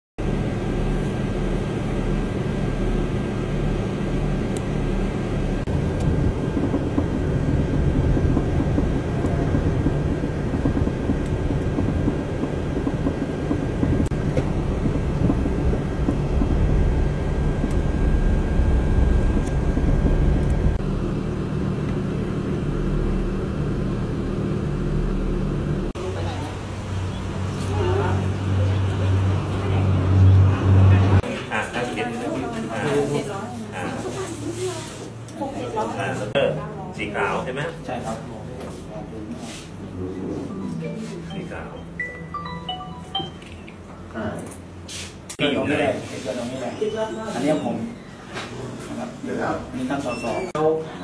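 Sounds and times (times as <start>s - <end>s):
faint constant whine: 0.2s - 29.8s
low mechanical rumble: 0.2s - 31.3s.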